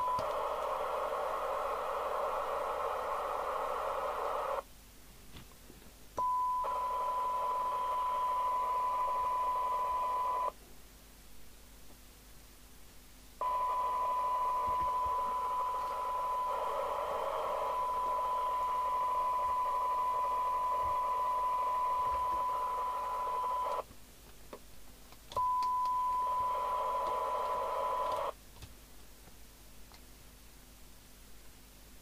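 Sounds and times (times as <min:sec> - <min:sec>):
radio hiss: 0:00.0 - 0:04.6, 0:13.4 - 0:23.8, 0:26.2 - 0:28.3
radio test tone: 0:13.4 - 0:23.8.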